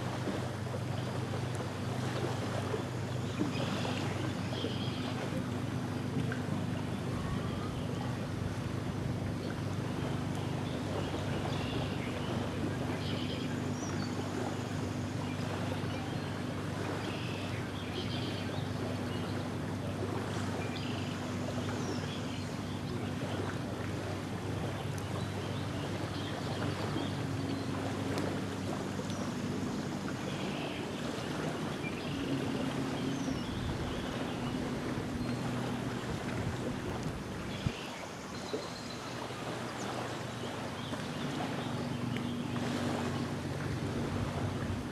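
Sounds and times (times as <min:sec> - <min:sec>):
distant engine drone: 0:00.0 - 0:44.9
small waves lapping on shore: 0:00.0 - 0:44.9.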